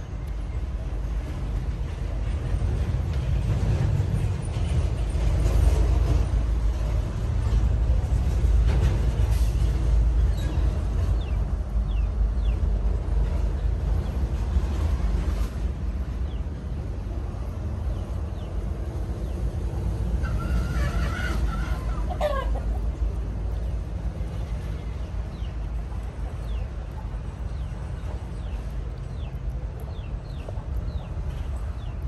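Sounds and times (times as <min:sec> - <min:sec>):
steady low rumble: 0:00.0 - 0:32.0
rooster crowing: 0:20.3 - 0:22.6.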